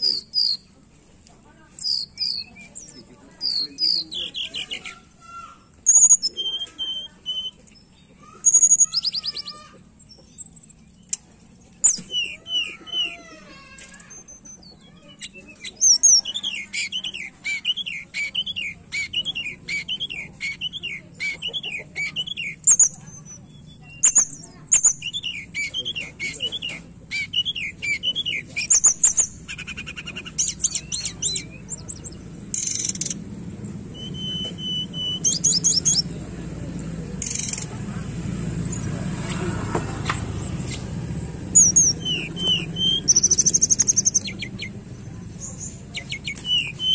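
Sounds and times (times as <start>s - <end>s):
bird whistles and chirps: 0.0s - 0.7s, 1.8s - 5.1s, 5.8s - 10.8s, 11.8s - 13.2s, 13.9s - 33.2s, 33.9s - 36.1s, 41.5s - 46.9s
bird warbled phrase: 1.8s - 7.6s, 12.1s - 33.1s, 33.8s - 36.2s, 38.8s - 46.9s.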